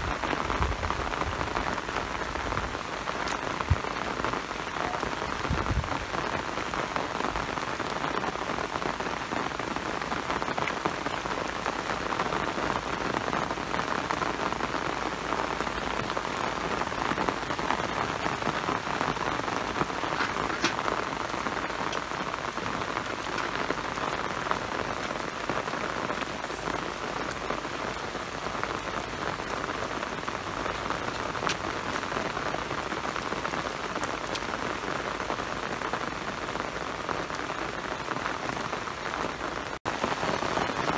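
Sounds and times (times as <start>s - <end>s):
rain falling on wet ground: 0.0s - 40.9s.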